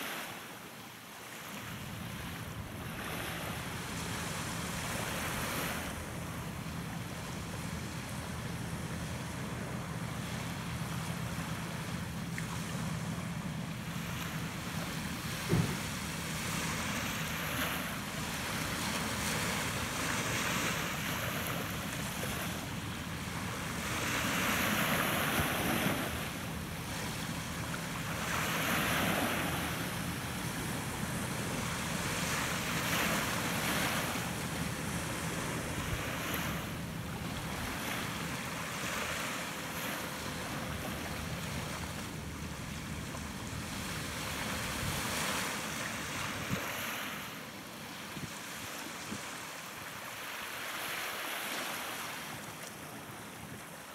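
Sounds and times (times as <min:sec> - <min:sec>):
waves washing: 0:00.0 - 0:53.9
brief knock: 0:15.4 - 0:15.9.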